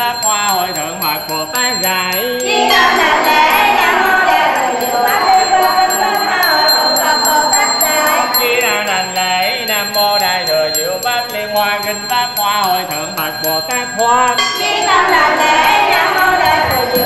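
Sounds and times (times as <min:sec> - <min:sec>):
bell ringing: 0:00.0 - 0:17.0
chanting sung as slow melody: 0:02.1 - 0:10.0, 0:13.6 - 0:17.0.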